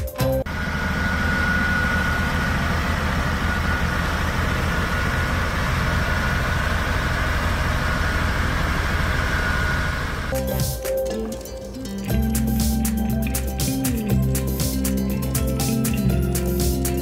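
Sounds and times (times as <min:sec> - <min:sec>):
high whine: 0:00.2 - 0:11.2
road roller diesel engine running: 0:00.2 - 0:17.0.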